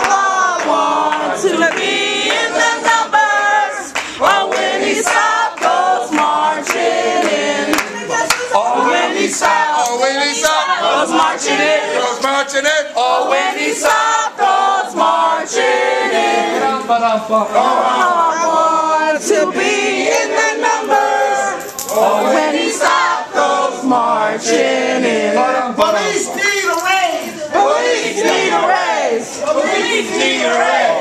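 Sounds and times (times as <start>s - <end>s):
group singing in chorus: 0.0s - 31.0s
sharp claps: 3.9s - 8.6s.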